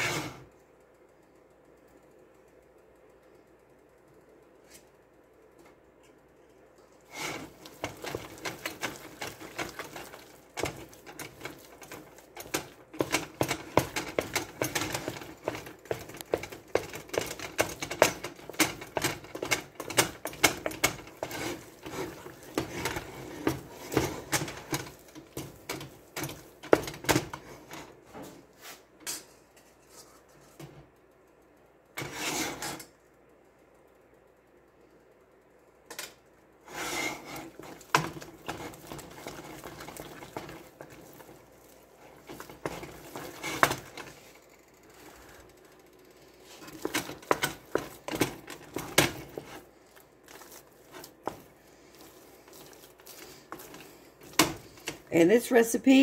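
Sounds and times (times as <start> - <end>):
wooden spoon clacking against pot: 7.4 - 27.5, 46.6 - 49.6.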